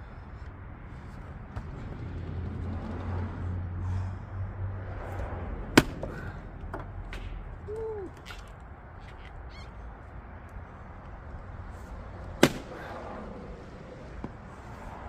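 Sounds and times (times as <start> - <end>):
axe striking log: 5.7 - 6.2, 12.4 - 12.9.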